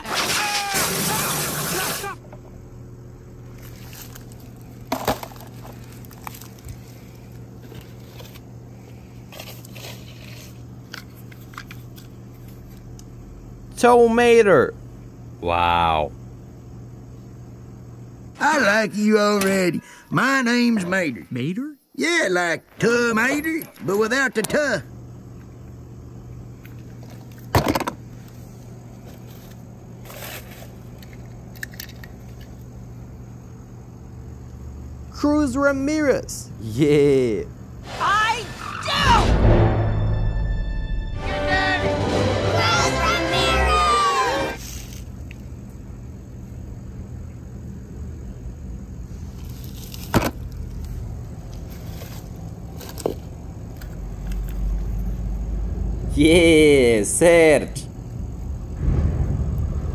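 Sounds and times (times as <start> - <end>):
steady low hum: 2.0 - 43.1, 44.0 - 59.9
steady low rumble: 57.9 - 59.9.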